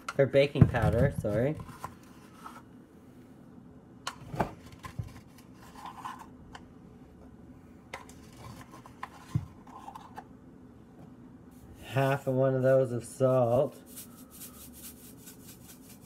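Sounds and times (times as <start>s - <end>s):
spoon scraping powder: 13.3s - 16.0s.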